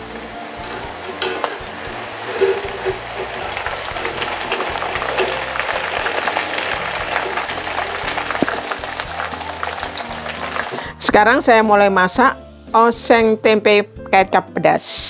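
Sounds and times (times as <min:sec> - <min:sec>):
food deep-frying in oil: 0:00.0 - 0:10.9
strainer and spatula scooping: 0:00.0 - 0:10.9.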